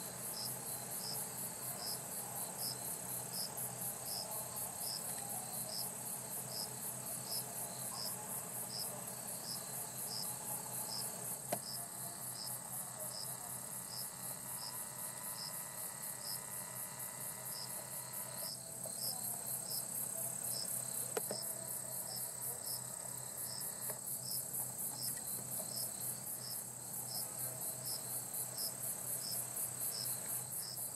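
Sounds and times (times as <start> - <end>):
insect chirp: 0.0 - 30.9.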